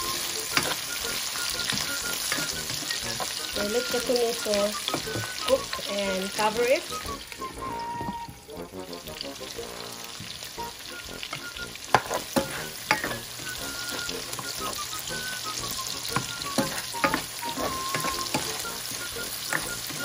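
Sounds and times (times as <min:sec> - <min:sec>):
food sizzling in a frying pan: 0:00.0 - 0:20.0
spatula clacking against pan: 0:00.4 - 0:03.7, 0:11.2 - 0:14.8, 0:15.9 - 0:20.0
plastic spatula scraping a pan: 0:16.5 - 0:18.6.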